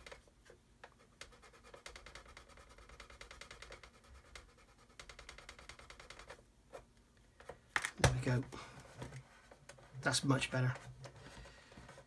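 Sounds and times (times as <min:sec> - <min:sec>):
sanding stick rubbing plastic: 0:01.2 - 0:06.4.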